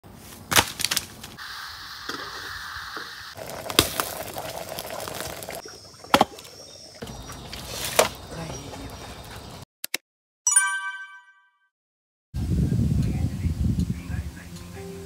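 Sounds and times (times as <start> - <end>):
wood fire hissing and crackling: 0.2 - 9.6.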